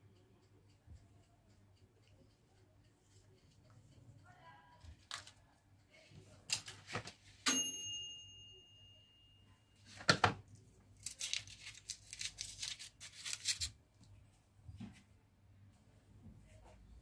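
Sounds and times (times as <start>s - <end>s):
metallic ding ringing: 7.5s - 9.5s.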